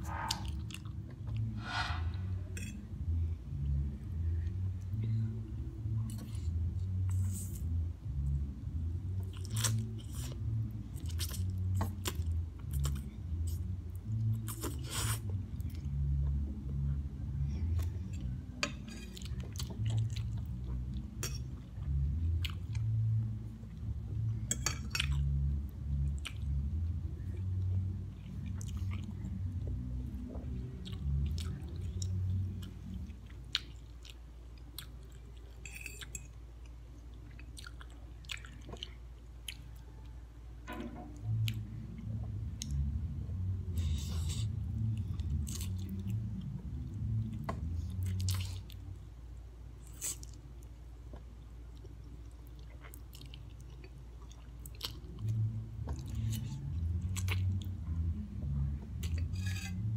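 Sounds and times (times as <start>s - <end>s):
chewing and slurping noodles: 14.4s - 15.8s.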